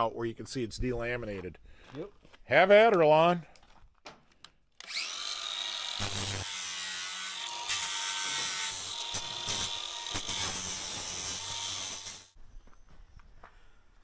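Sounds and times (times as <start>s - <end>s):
angle grinder grinding metal: 4.8s - 12.4s.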